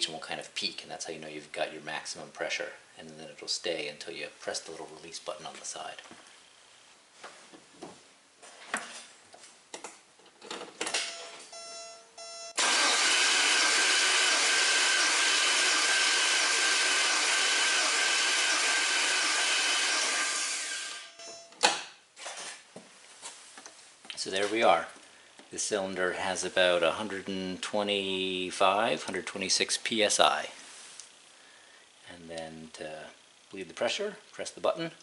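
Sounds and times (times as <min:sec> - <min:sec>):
short electronic tones: 0:11.0 - 0:12.6
starter motor cranking engine: 0:12.6 - 0:21.0.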